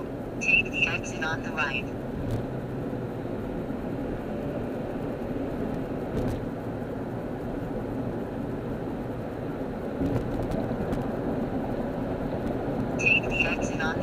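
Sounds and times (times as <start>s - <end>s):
car road and engine noise: 0.0s - 14.0s.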